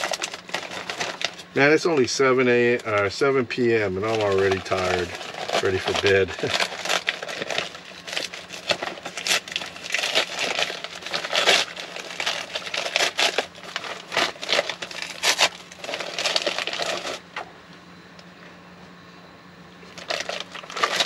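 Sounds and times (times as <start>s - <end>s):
snack bag crinkling: 0.0s - 1.6s, 4.0s - 17.2s, 19.8s - 21.0s
crunchy snacks being eaten: 4.0s - 17.2s, 19.8s - 21.0s.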